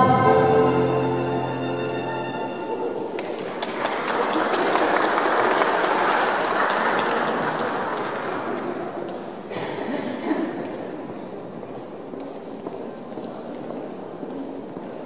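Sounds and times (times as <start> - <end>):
audience clapping: 3.1 - 9.3.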